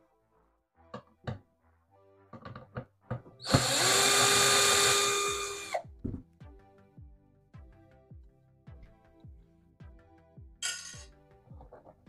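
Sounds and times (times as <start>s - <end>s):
power drill running: 3.4s - 5.8s.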